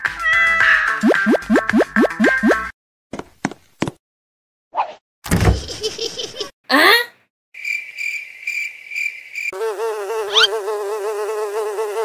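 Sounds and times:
housefly buzzing: 9.4s - 12.0s.

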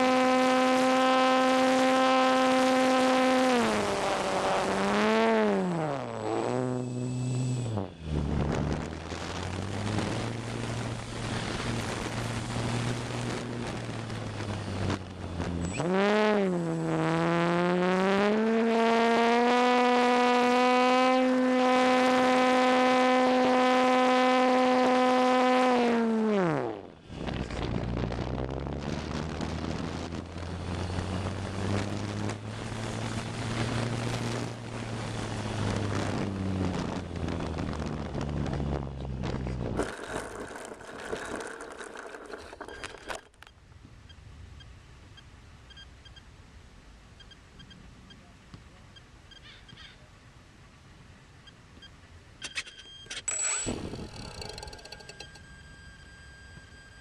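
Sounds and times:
electric motor and propeller whining: 0.0s - 43.5s, 52.5s - 57.0s
wind rush: 7.0s - 15.7s, 27.0s - 41.7s
plane scraping on grass: 39.5s - 43.3s.

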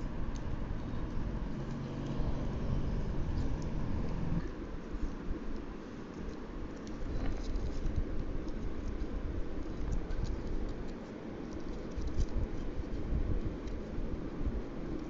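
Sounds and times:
low steady rumble: 0.0s - 15.0s
paper crinkling and rustling: 4.4s - 14.1s.

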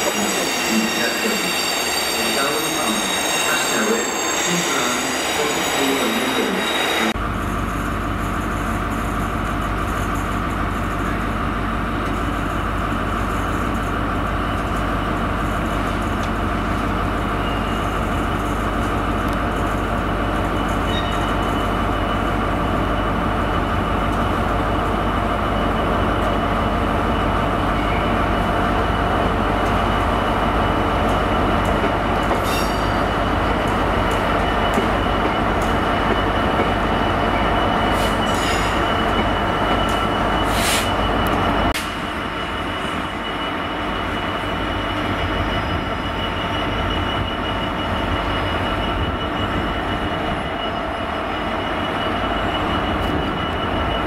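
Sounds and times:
wheel squeal of rolling wagons: 0.0s - 7.2s, 17.3s - 18.2s, 20.5s - 22.1s, 30.7s - 41.7s
diesel locomotive engine drone: 0.0s - 54.0s.

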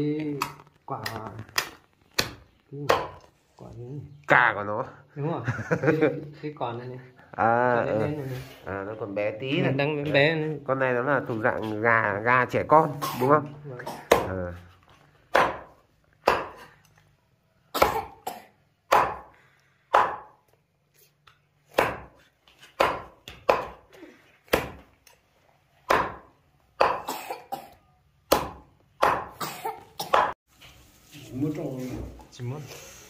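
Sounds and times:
cleaver chopping on board: 15.3s - 16.6s, 18.9s - 19.3s, 19.9s - 20.3s, 21.7s - 22.2s, 22.8s - 23.8s, 24.5s - 24.9s, 25.8s - 27.1s, 28.3s - 29.4s.

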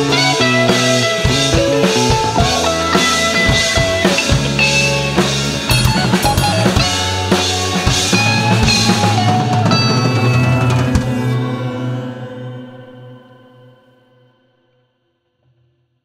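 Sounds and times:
drum kit kick and snare: 0.0s - 11.2s
electric guitar: 0.0s - 13.8s.

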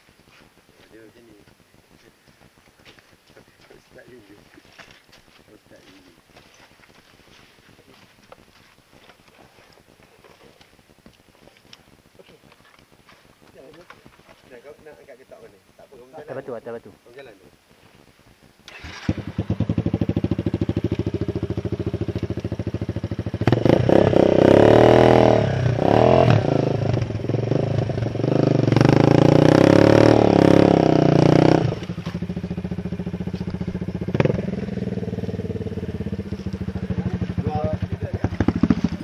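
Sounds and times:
dirt bike engine revving: 18.6s - 39.0s.

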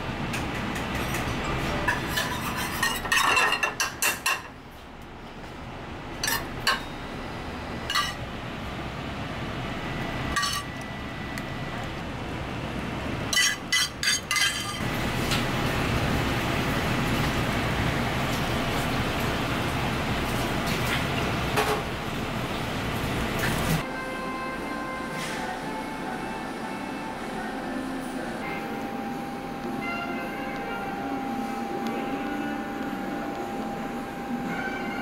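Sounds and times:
steady background hum: 0.0s - 35.0s
dishes and utensils clinking: 0.5s - 4.6s, 6.2s - 7.0s, 7.9s - 8.2s, 10.3s - 10.8s, 13.3s - 14.8s.

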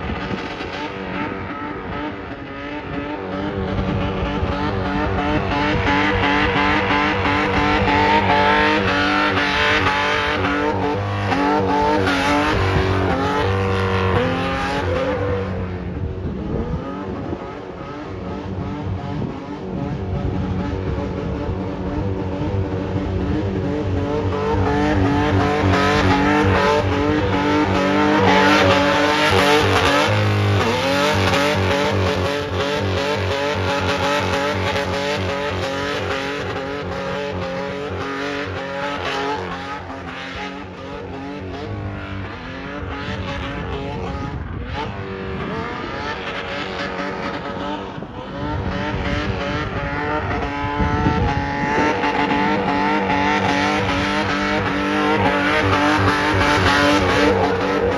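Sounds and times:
engine at high revs: 0.0s - 57.9s
tyres squealing and skidding: 24.5s - 31.9s, 51.4s - 57.9s.

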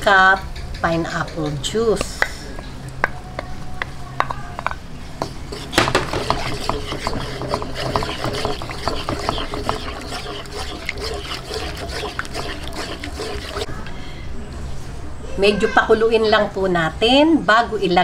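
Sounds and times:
spatula scraping in a wok: 4.6s - 13.8s
juice sizzling in a pan: 5.6s - 13.7s.

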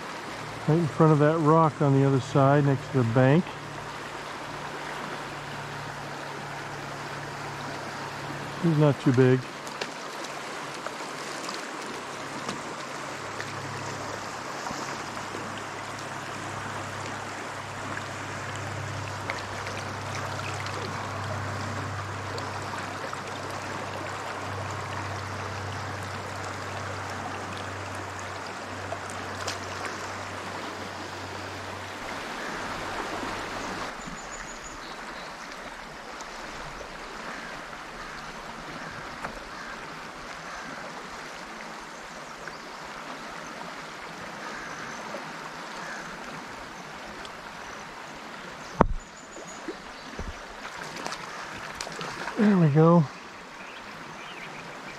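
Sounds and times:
river water rushing: 0.0s - 54.9s
low hum: 12.0s - 34.0s.

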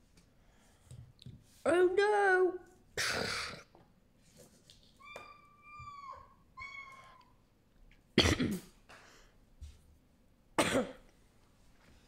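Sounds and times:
person coughing: 8.2s - 8.8s, 10.6s - 11.0s.

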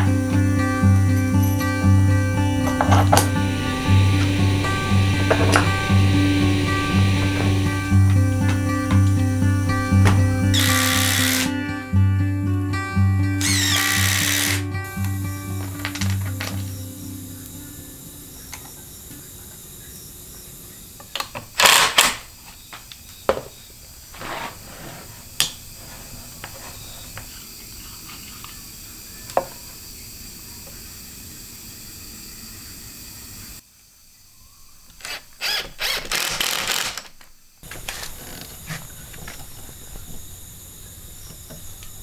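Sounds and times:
power drill driving a screw: 10.5s - 11.6s, 13.4s - 16.1s, 21.6s - 22.1s, 35.0s - 37.1s.

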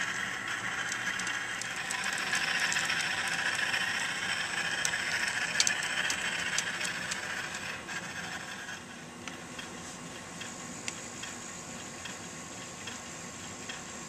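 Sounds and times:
light clicks of track: 0.5s - 7.8s, 13.6s - 13.9s.

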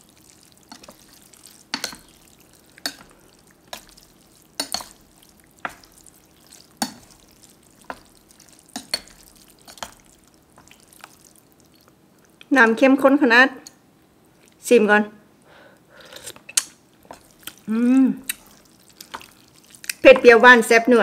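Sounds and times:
faint steady hiss: 0.0s - 21.0s
utensils clinking against a bowl: 0.7s - 2.2s, 4.6s - 5.0s.

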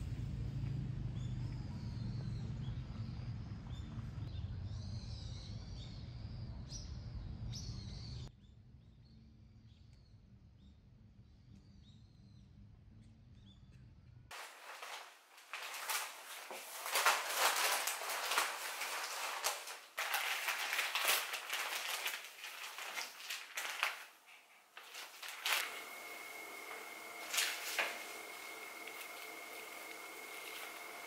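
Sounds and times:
dry rustling and crackling: 14.3s - 31.0s.

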